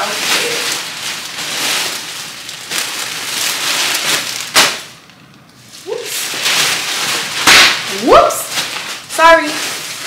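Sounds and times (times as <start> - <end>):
packaging rustling and crinkling: 0.0 - 10.0.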